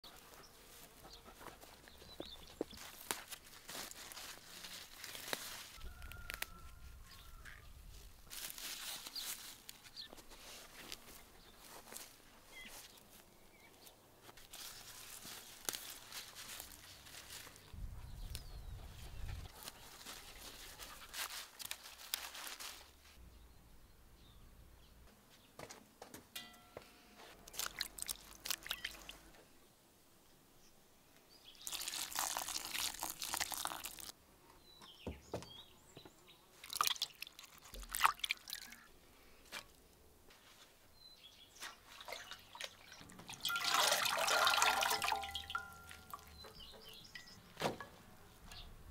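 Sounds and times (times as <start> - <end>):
leaves rustling: 2.5 - 23.2, 27.4 - 29.3, 31.6 - 34.2, 39.3 - 46.7
water dripping: 27.5 - 29.2, 31.6 - 34.1, 36.6 - 38.8, 41.9 - 47.3
water splashing: 36.6 - 38.7, 41.8 - 46.3.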